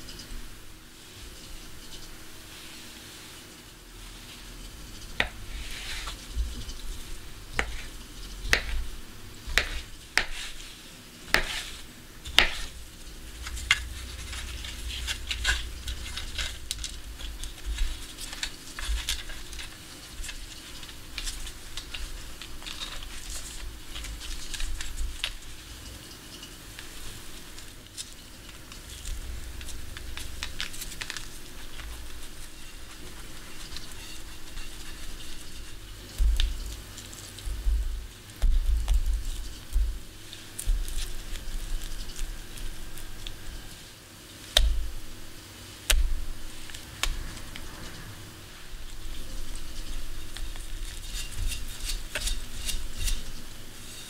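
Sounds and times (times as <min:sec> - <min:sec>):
spoon scraping pot: 0:11.3 - 0:21.0, 0:31.4 - 0:35.9, 0:49.1 - 0:54.0.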